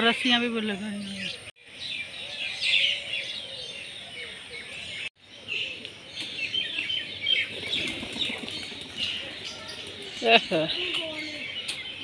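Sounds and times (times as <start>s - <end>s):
small birds chirping: 0.0s - 12.0s
pigeon wings flapping: 7.5s - 10.1s.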